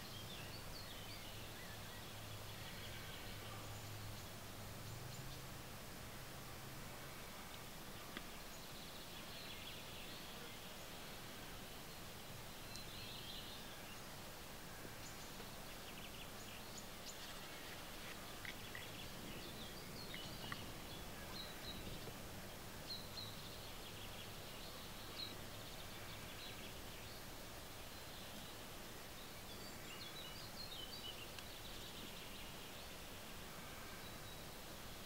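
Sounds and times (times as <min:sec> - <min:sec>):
background hiss: 0:00.0 - 0:35.0
small birds chirping: 0:07.0 - 0:35.0.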